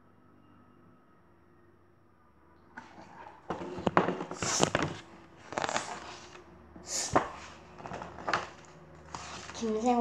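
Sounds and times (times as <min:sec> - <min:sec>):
book knocks and bumps: 0:02.8 - 0:06.3, 0:07.0 - 0:09.6
paper pages turning: 0:02.8 - 0:06.4, 0:07.0 - 0:10.0.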